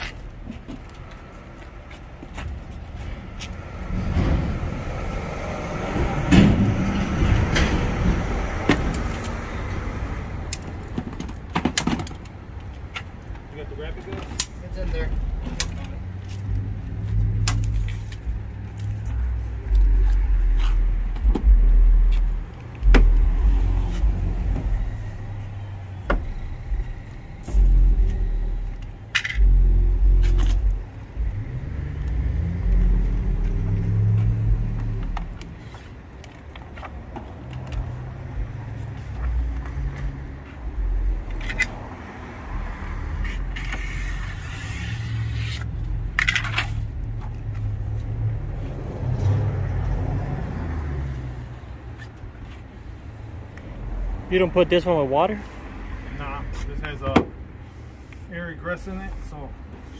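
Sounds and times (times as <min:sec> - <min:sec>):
loud low rumble: 0:19.2 - 0:35.4
squeegee scraping decal paper: 0:43.2 - 0:45.7.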